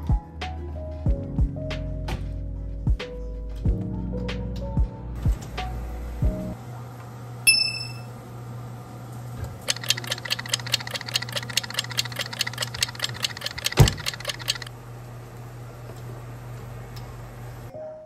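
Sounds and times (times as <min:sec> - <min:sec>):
oven electronic beep: 0:07.5 - 0:08.2.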